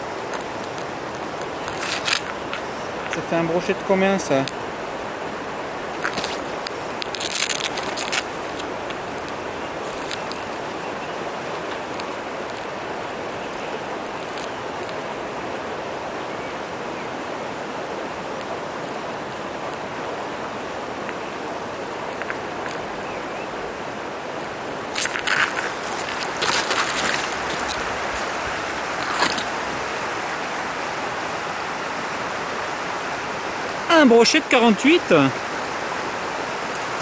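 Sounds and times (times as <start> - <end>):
river flowing over stones: 0.0 - 37.0
boots crunching on gravel: 24.9 - 29.9.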